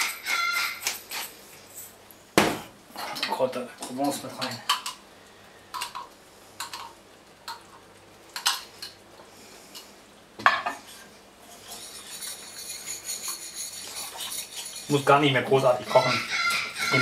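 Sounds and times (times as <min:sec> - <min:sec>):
steady hiss: 0:01.0 - 0:15.9
knock on pan: 0:02.4 - 0:02.7
spoon stirring and scraping sauce: 0:10.8 - 0:16.1.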